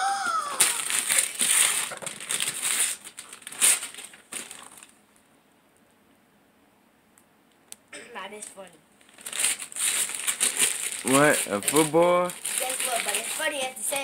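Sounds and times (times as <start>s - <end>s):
wrapping paper tearing and crumpling: 0.4s - 5.0s, 9.0s - 14.0s.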